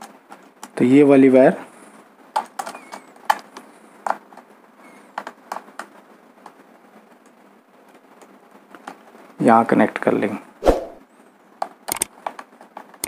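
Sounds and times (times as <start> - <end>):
screwdriver clicks and taps: 11.6 - 13.0.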